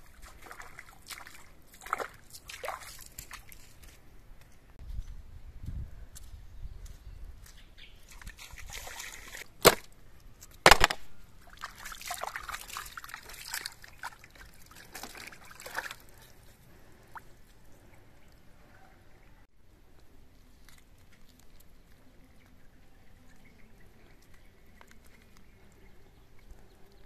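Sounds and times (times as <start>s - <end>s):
hands splashing water: 0.0s - 3.8s, 8.1s - 9.9s, 10.7s - 17.4s.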